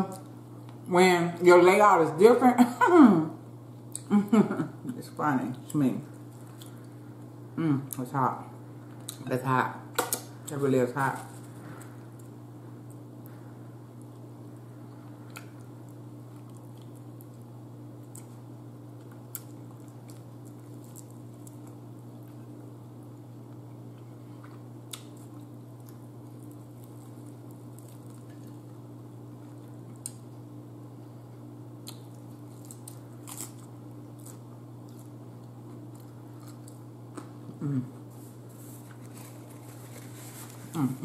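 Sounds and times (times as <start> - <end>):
steady low hum: 0.0 - 41.0
person chewing: 15.0 - 18.4, 19.0 - 22.6, 23.5 - 30.3, 31.8 - 40.8.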